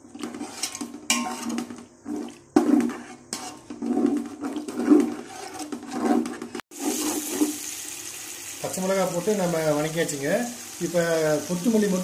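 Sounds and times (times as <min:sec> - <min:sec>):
ladle sloshing and scraping pot: 0:00.0 - 0:07.7.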